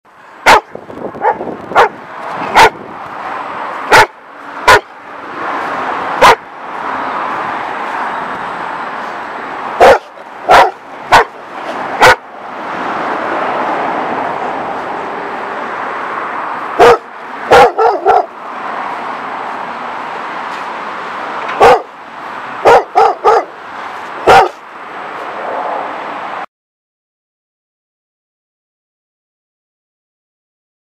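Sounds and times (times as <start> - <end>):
steady rushing background noise: 0.1 - 26.4
dogs barking: 0.4 - 2.8, 3.8 - 5.0, 6.1 - 6.5, 9.8 - 12.3, 16.7 - 18.4, 21.6 - 21.9, 22.6 - 23.6, 24.2 - 24.6.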